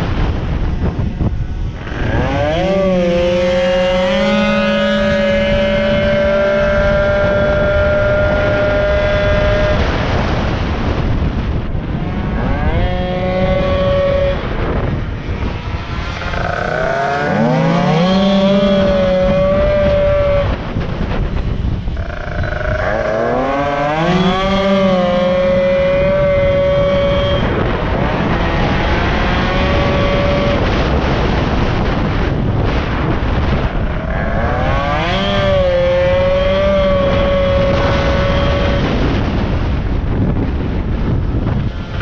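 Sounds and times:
moped engine revving: 0:00.0 - 0:40.0
wind noise on microphone: 0:00.0 - 0:42.0.

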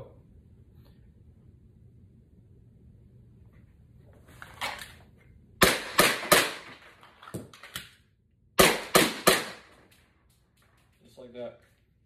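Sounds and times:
pistol shots indoors: 0:05.6 - 0:08.0, 0:08.6 - 0:10.0.

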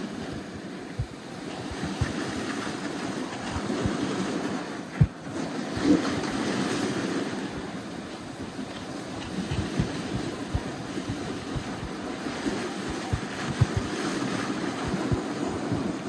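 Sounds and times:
sled runners hissing on snow: 0:05.7 - 0:16.0
sled bumping thumps: 0:08.8 - 0:14.1.

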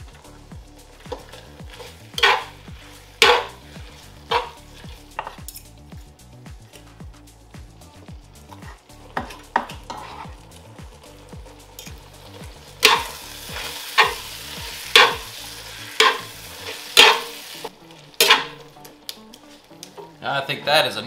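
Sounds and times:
low sizzle: 0:00.0 - 0:21.0
metal spatula scraping skillet: 0:01.1 - 0:05.8, 0:08.5 - 0:10.4, 0:12.8 - 0:15.3, 0:16.0 - 0:17.6, 0:18.2 - 0:18.7.

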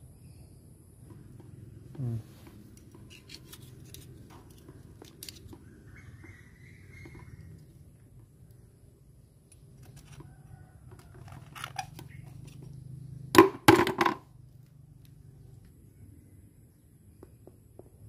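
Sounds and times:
spoon scraping oyster shell: 0:02.7 - 0:05.6.

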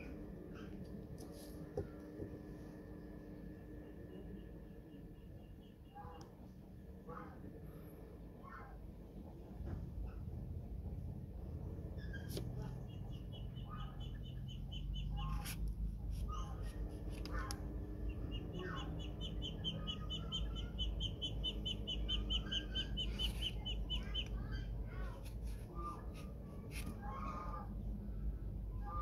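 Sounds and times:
bird chirping: 0:12.0 - 0:15.5, 0:18.0 - 0:25.1.

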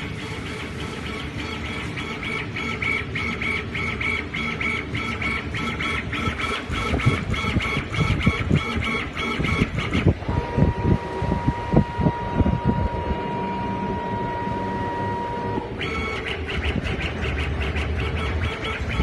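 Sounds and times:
laser cutter motors whining: 0:00.0 - 0:19.0
low machine hum: 0:00.0 - 0:19.0
low thumps and rumbling: 0:06.8 - 0:14.5.

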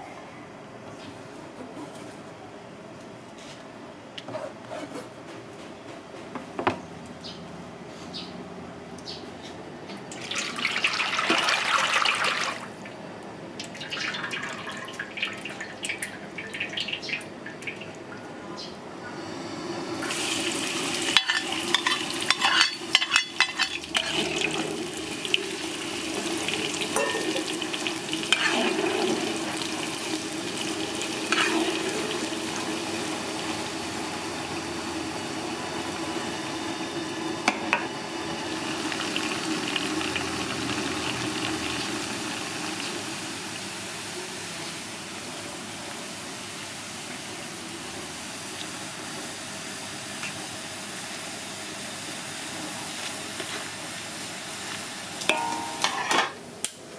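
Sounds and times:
egg sizzling in hot oil: 0:20.0 - 0:44.9
metal ladle scraping wok: 0:21.1 - 0:24.6, 0:28.3 - 0:29.1, 0:31.3 - 0:31.8, 0:55.3 - 0:56.4.

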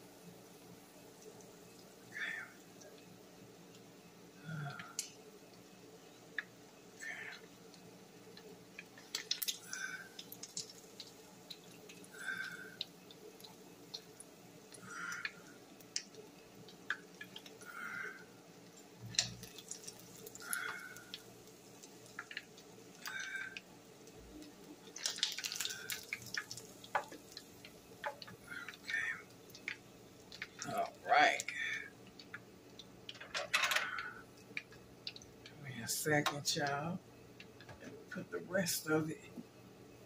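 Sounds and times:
oil sizzling with crackles and pops: 0:00.0 - 0:40.0.

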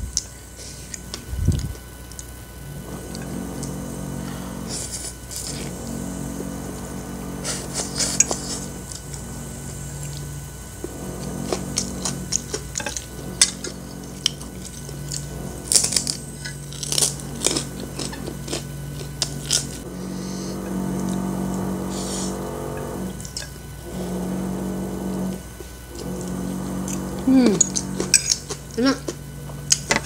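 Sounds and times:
steady low hum: 0:00.0 - 0:30.0
cracker crunching: 0:09.9 - 0:20.0, 0:25.3 - 0:30.0
slurping and chewing noodles: 0:09.9 - 0:30.0.

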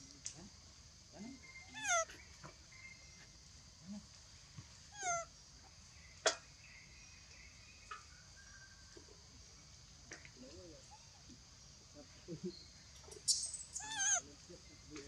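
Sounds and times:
young monkey call: 0:01.6 - 0:02.2, 0:04.9 - 0:05.3, 0:13.2 - 0:14.2.

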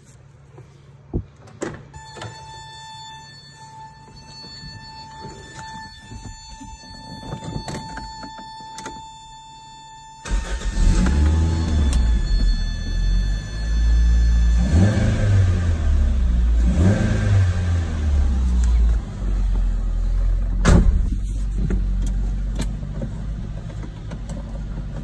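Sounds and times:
high warning tone: 0:02.0 - 0:19.2
car engine starting and revving: 0:10.2 - 0:12.6, 0:13.9 - 0:20.7.

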